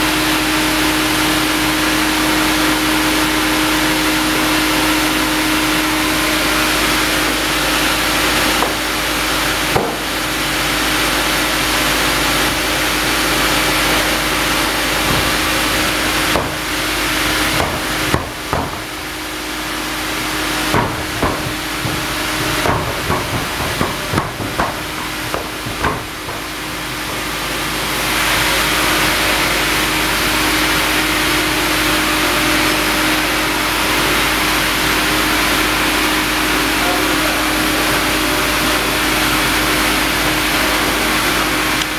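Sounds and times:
loud hissing saw noise: 0.0 - 41.9
sawmill machinery humming: 0.0 - 41.9
carriage clunks and knocks: 20.7 - 26.7.

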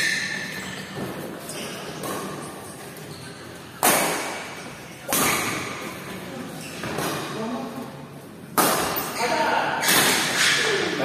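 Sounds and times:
rackets striking shuttlecock: 3.8 - 5.9, 8.5 - 9.2.

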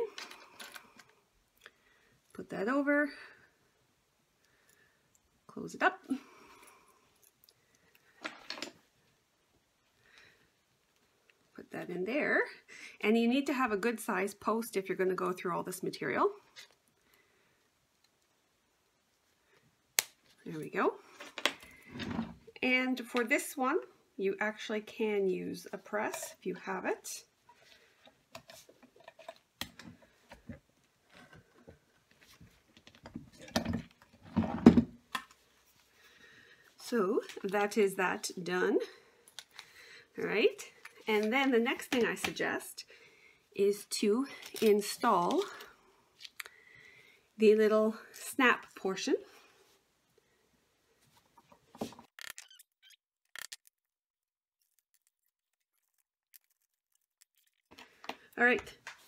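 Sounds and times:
small clicks and rustles: 54.6 - 59.0.

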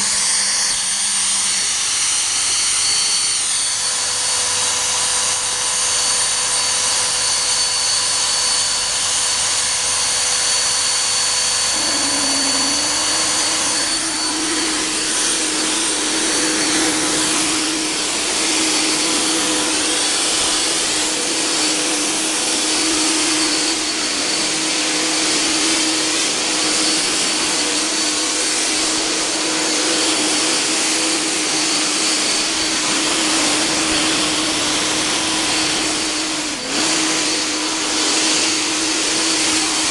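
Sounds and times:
fog generator blower hissing: 0.0 - 39.9
low hum: 10.9 - 20.6.

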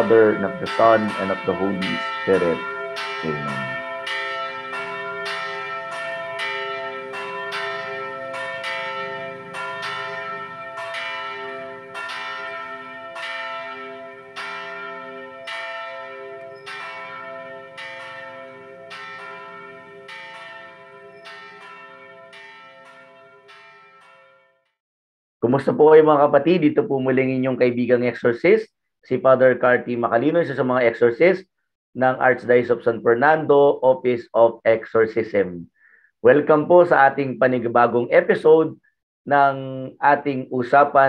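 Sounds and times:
church bells ringing: 0.0 - 24.6.

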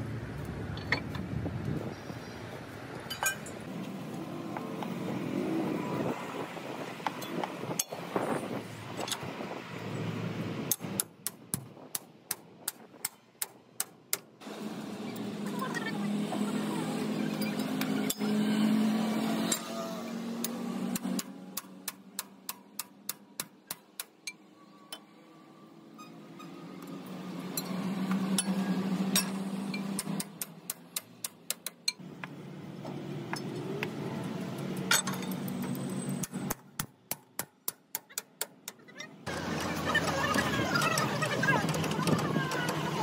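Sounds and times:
hammer striking metal: 28.4 - 32.0.

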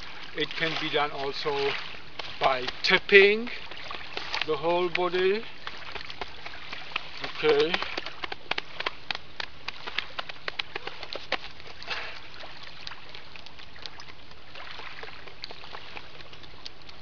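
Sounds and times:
lake waves lapping: 0.0 - 17.0
hands tapping on jacket: 6.1 - 11.5
breathy exhale: 11.8 - 12.3.

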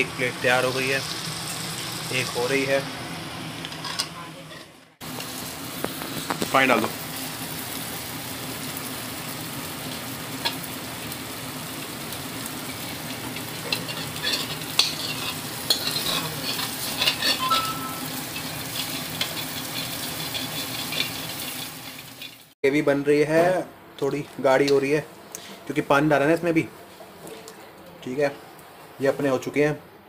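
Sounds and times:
curry sizzling in a pan: 0.0 - 4.4, 5.0 - 22.6
spoon scraping and clinking on pan: 13.4 - 22.4.

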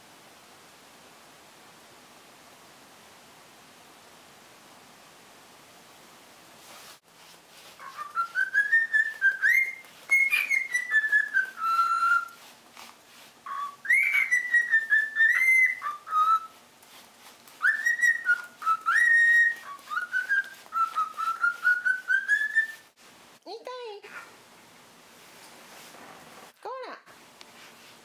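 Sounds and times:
cockatiel whistling: 7.8 - 12.4, 13.4 - 16.6, 17.5 - 22.9.

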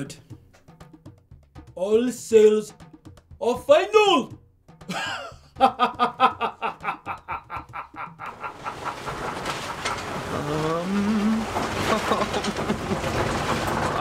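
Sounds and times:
man laughing villainously: 4.8 - 9.1, 11.9 - 13.2.

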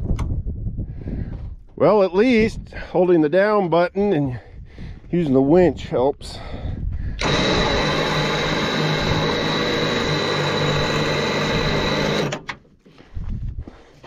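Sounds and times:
electric winch and pump whining: 7.2 - 12.6.

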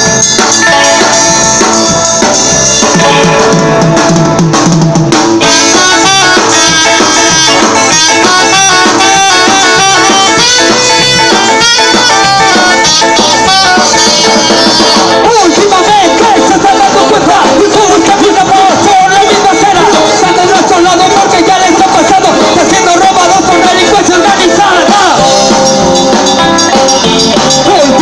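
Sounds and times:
bass guitar: 0.0 - 28.0
drum kit: 0.0 - 28.0
electric guitar: 0.0 - 28.0
saxophone: 5.4 - 15.4.

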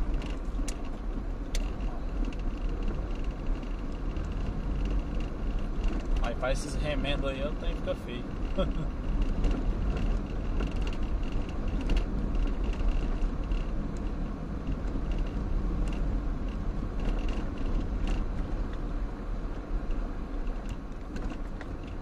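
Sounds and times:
car engine and tyres rumbling: 0.0 - 22.0
car interior rattles and creaks: 0.0 - 22.0.

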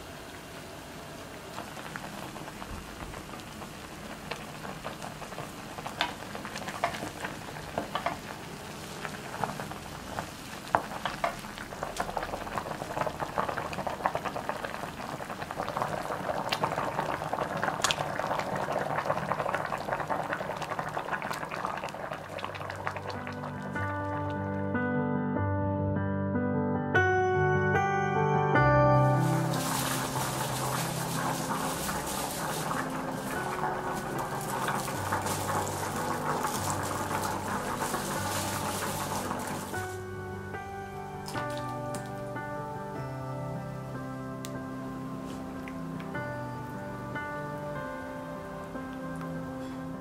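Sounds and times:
broth boiling and bubbling: 0.0 - 24.5, 29.2 - 40.2.

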